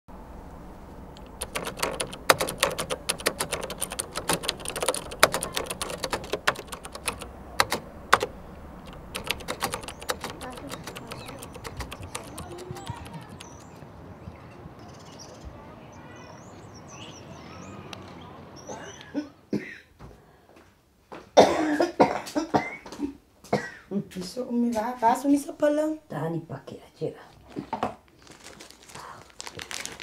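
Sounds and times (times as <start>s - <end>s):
typing on computer keyboard: 1.2s - 13.6s.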